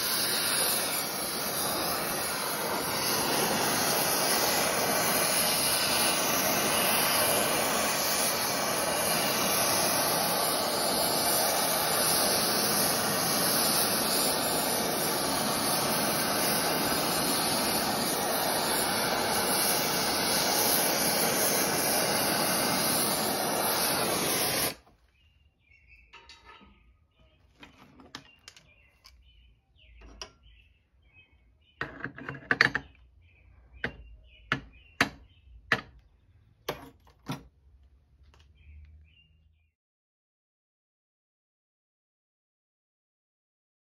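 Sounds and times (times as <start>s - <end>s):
torch flame burning: 0.0s - 24.9s.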